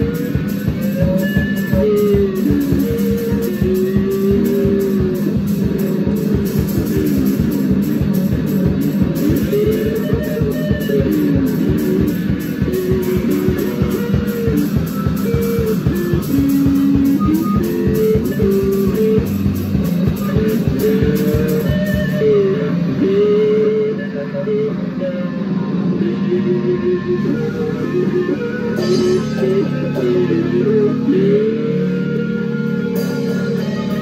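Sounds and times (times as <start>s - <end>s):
fast drum clatter: 0.0s - 22.3s
electric guitar sliding notes: 0.0s - 34.0s.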